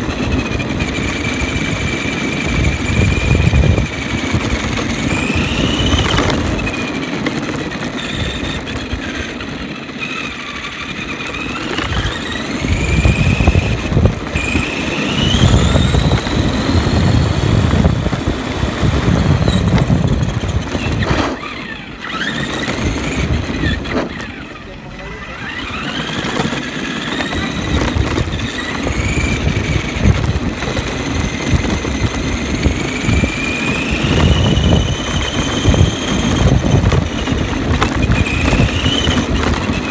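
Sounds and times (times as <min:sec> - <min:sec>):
electric motor and gears whining: 0:00.0 - 0:39.9
tyres rumbling on rough road: 0:00.0 - 0:39.9.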